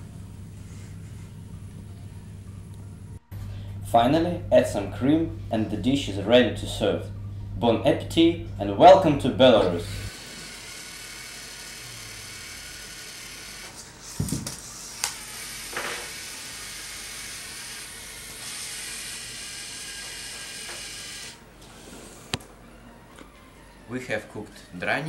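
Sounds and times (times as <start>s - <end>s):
toy robot motors whirring: 10.1s - 22.3s.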